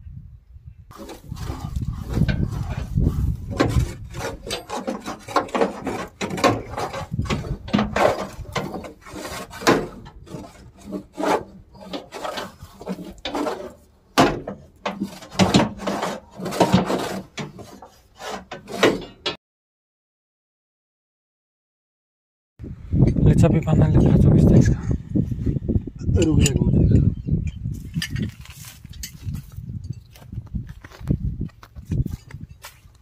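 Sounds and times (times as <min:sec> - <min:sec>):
scraping against metal: 0:00.9 - 0:19.4
sharp knocks on metal: 0:14.2 - 0:15.9.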